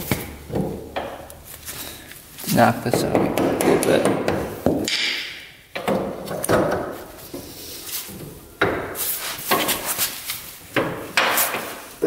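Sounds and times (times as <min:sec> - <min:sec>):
metal knocks and clunks: 0:00.0 - 0:01.3, 0:02.8 - 0:07.0.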